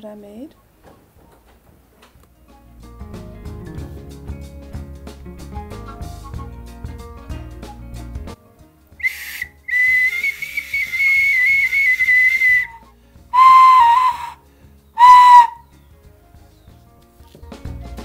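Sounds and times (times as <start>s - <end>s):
clay whistle notes: 9.0s - 14.4s, 15.0s - 15.8s.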